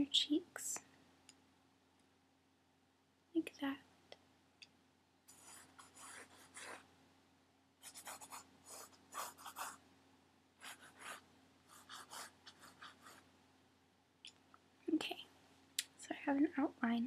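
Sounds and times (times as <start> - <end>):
pencil drawing on paper: 5.3 - 6.8, 7.8 - 9.8, 10.6 - 13.2.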